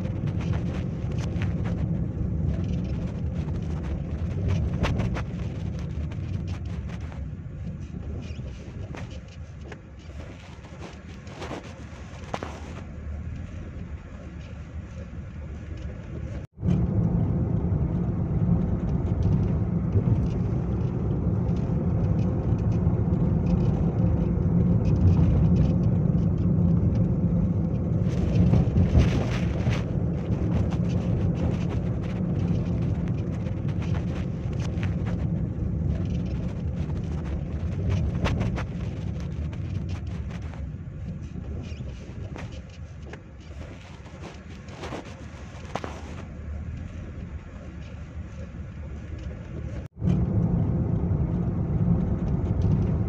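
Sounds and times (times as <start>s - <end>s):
wind rumbling on microphone: 0.0s - 53.0s.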